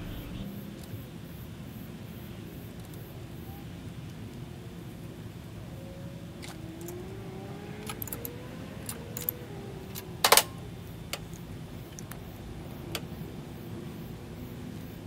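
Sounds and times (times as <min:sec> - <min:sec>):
light clicks of handling leads: 0:06.4 - 0:13.2.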